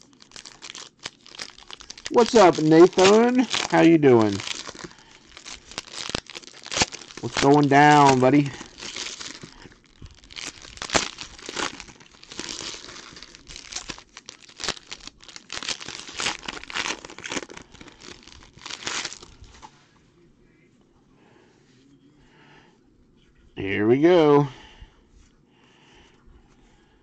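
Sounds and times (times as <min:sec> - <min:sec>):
foil wrappers crinkling and tearing: 0:00.0 - 0:19.6.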